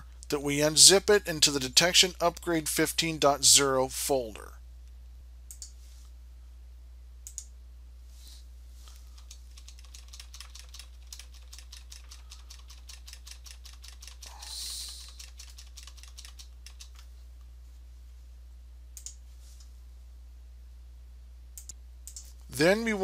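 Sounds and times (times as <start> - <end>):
computer keyboard clicks: 9.2 - 17.0
short hiss: 14.4 - 15.2.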